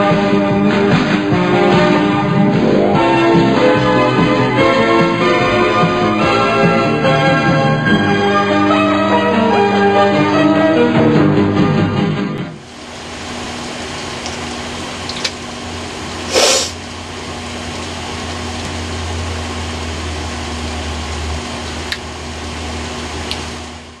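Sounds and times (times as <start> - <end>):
motor hum and whoosh: 1.6 - 6.6
short hiss: 16.3 - 16.8.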